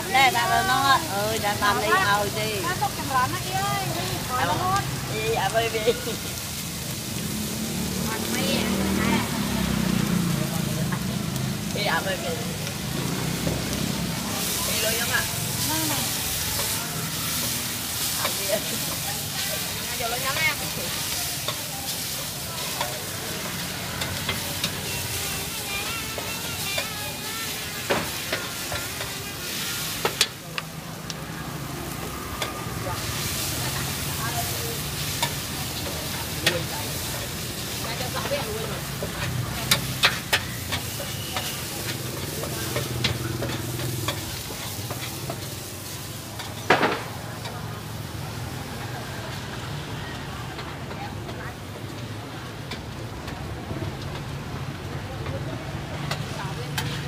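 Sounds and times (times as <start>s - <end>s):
noodles sizzling in a wok: 0.0s - 57.0s
metal spatula scraping wok: 12.8s - 30.4s, 32.0s - 46.7s
metal spatula scraping a pan: 15.8s - 30.2s.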